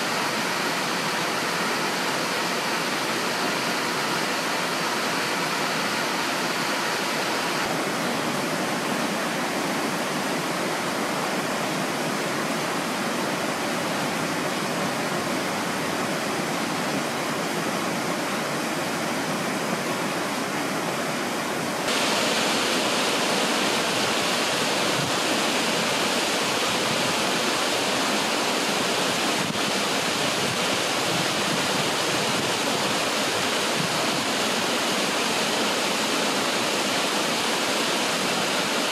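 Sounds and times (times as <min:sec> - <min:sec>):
river running over stones: 0:00.0 - 0:38.9
steady rain hiss: 0:00.0 - 0:38.9.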